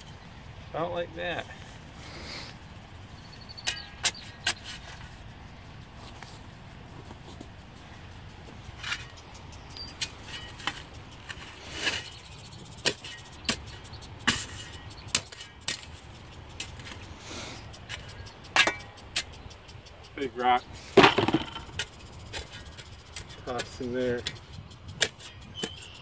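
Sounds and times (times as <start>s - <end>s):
shovel chopping and scraping dirt: 3.5s - 5.4s, 8.4s - 26.0s.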